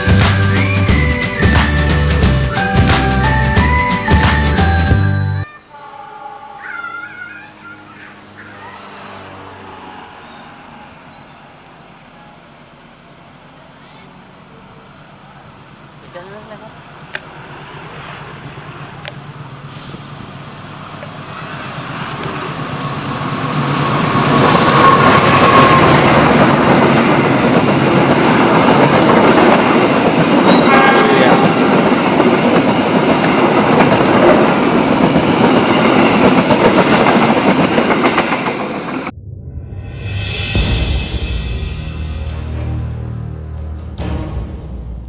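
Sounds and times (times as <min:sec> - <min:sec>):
diesel locomotive: 0:00.0 - 0:45.0
train wheels clattering on rails: 0:21.8 - 0:30.7, 0:31.3 - 0:39.1.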